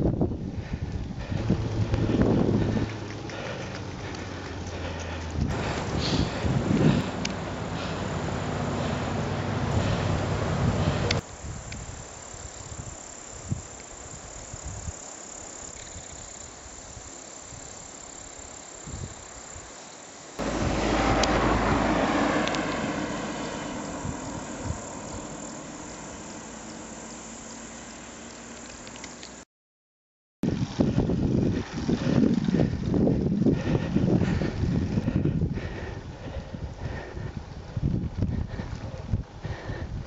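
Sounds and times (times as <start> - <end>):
wind rumble on microphone: 0.0 - 15.0, 18.8 - 19.2, 20.4 - 26.2, 30.4 - 40.0
loud rumble: 0.6 - 11.2, 20.4 - 26.6
insects chirring: 11.2 - 20.4, 22.3 - 29.4.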